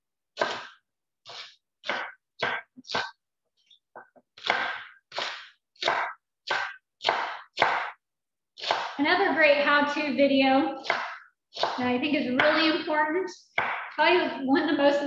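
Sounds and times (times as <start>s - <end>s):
knife slicing on cutting board: 0.4s - 3.1s.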